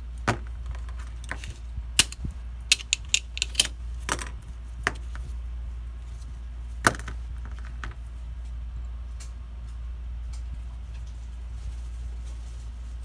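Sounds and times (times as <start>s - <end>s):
steady low hum: 0.0s - 13.0s
hand tools clicking on workbench: 1.2s - 3.7s.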